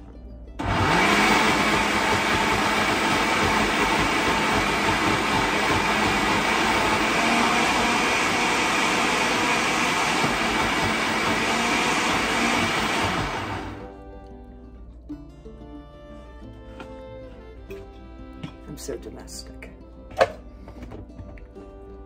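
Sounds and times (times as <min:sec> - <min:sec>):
blender running: 0:00.6 - 0:13.8.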